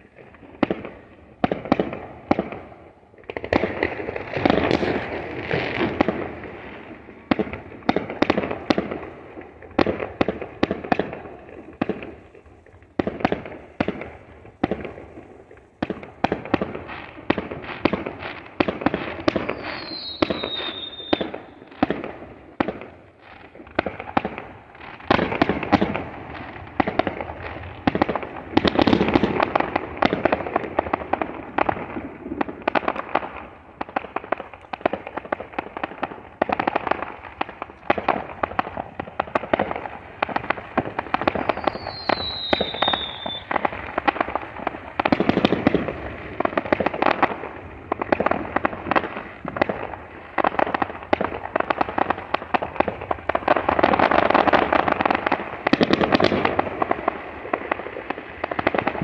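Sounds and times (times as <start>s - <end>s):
fireworks bangs and crackling: 0.0s - 59.0s
falling whistle: 19.5s - 21.2s, 41.6s - 43.5s.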